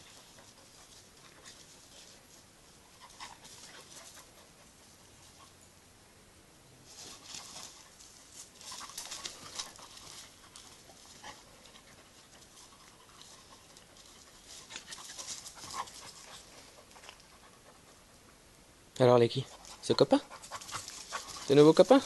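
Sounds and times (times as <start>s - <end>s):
dogs panting: 0.0s - 5.6s, 7.0s - 18.4s, 19.4s - 22.0s
paws scuffling on grit: 6.8s - 17.7s, 19.5s - 22.0s.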